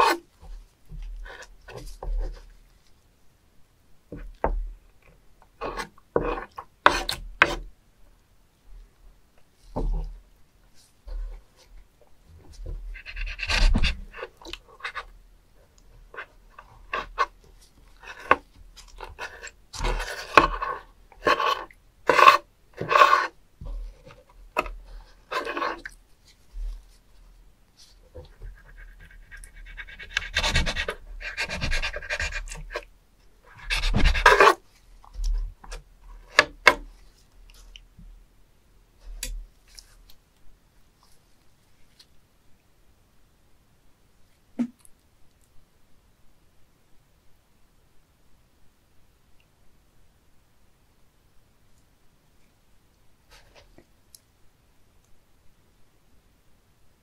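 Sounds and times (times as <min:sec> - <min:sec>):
knife scraping on cutting board: 0:00.0 - 0:00.2, 0:05.6 - 0:07.6, 0:18.0 - 0:23.4, 0:24.6 - 0:26.0, 0:33.5 - 0:34.6.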